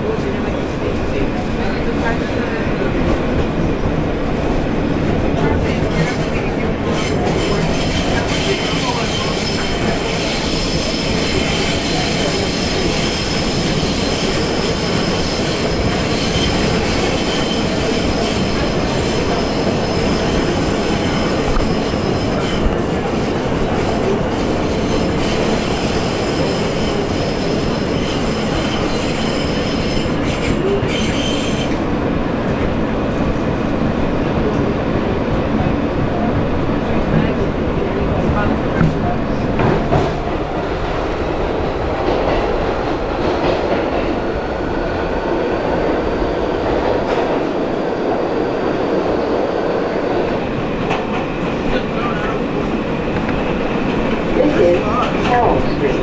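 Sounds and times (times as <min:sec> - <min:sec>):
train wheels rumbling on rail: 0:00.0 - 0:56.0
high wheel squeal: 0:24.7 - 0:31.8.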